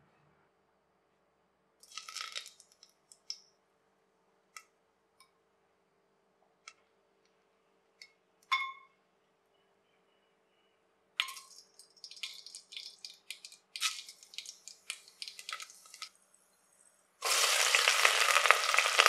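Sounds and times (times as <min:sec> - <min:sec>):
leaf crackling in oil: 0:01.8 - 0:03.4, 0:11.2 - 0:16.2, 0:17.2 - 0:19.0
spices sizzling in hot oil: 0:11.2 - 0:16.1, 0:17.2 - 0:19.0.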